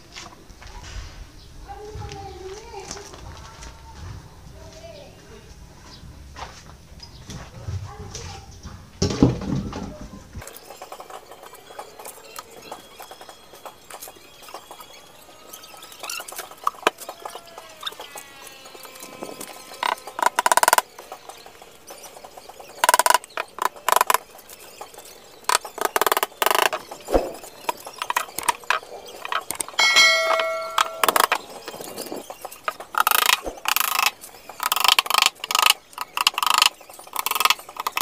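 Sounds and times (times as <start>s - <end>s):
short ringing tone: 29.8s - 31.5s.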